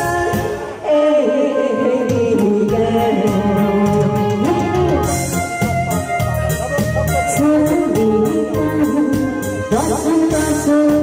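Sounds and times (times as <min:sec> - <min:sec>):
backing music: 0:00.0 - 0:11.0.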